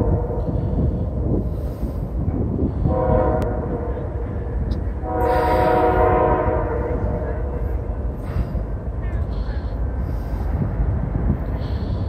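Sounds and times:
locomotive air horn blasts: 0:02.8 - 0:04.0, 0:05.0 - 0:07.8.

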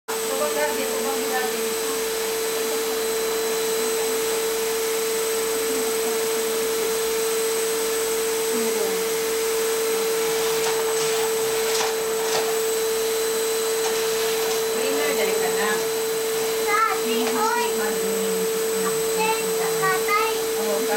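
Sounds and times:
vacuum cleaner running: 0:00.1 - 0:20.9.

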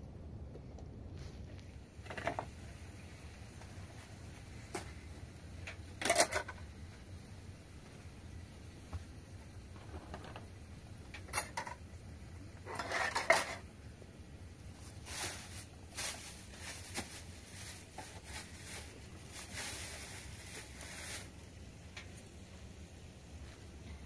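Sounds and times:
plates and metal pots clattering: 0:06.0 - 0:06.6, 0:11.2 - 0:11.8, 0:12.7 - 0:13.7.

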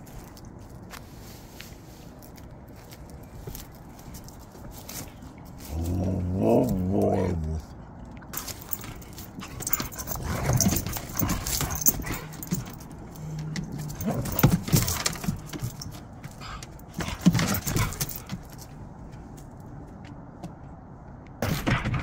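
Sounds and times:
dogs grumbling: 0:05.6 - 0:07.8, 0:08.6 - 0:18.4
claws clattering on wooden boards: 0:08.4 - 0:20.6.

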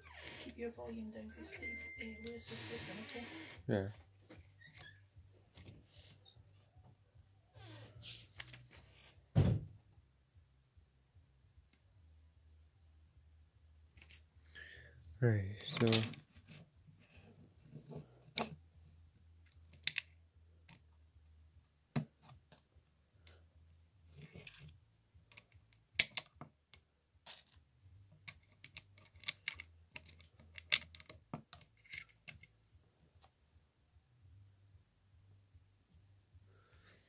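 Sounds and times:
plastic bricks clicking together: 0:15.6 - 0:16.2, 0:19.6 - 0:20.1, 0:25.3 - 0:27.6, 0:28.2 - 0:32.5.

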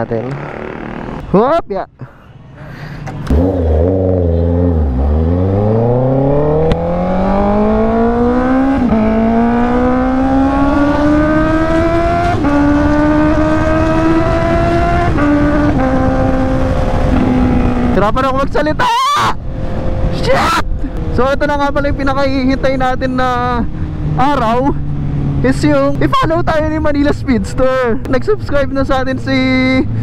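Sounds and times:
motorcycle engine accelerating: 0:00.0 - 0:01.3, 0:03.2 - 0:18.3, 0:20.8 - 0:27.9
wind and road noise: 0:00.0 - 0:30.0.

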